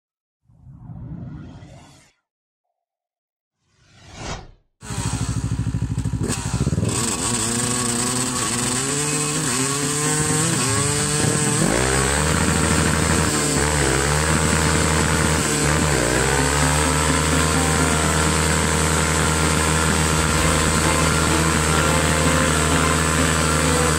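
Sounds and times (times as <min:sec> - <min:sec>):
dirt bike engine revving: 0:04.8 - 0:23.9
quad engine running high: 0:04.8 - 0:23.9
tyre spinning in a burnout: 0:07.1 - 0:23.9.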